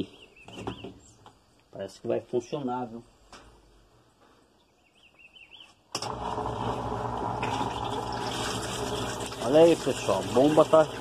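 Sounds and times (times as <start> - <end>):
drain pump humming: 6.0 - 11.0
water gushing into tub: 6.1 - 11.0.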